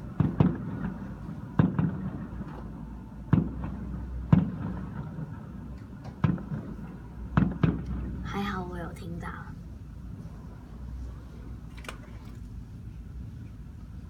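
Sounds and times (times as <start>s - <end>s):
distant fireworks bangs: 0.0s - 8.4s.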